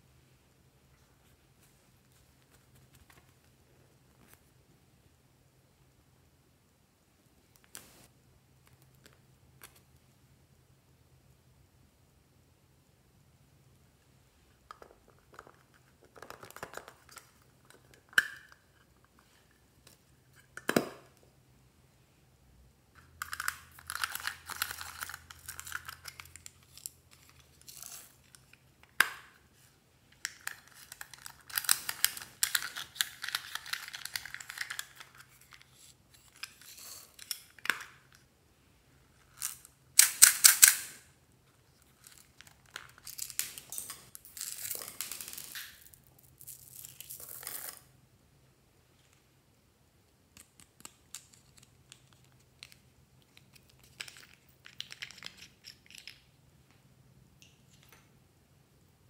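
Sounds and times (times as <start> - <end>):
plastic beads rattling and crinkling: 23.2 - 28.5, 30.2 - 37.7, 41.8 - 47.8.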